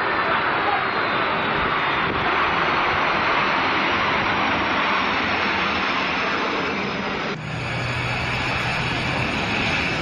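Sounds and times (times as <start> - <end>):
jet airliner landing on wet runway: 0.1 - 10.0.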